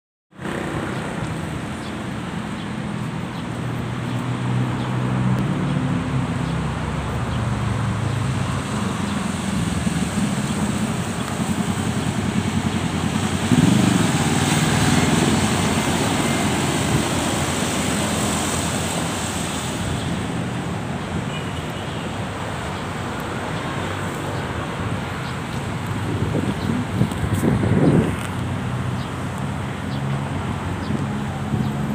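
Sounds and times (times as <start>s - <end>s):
road traffic hum: 0.3s - 31.9s
vehicle passing close: 3.6s - 21.0s.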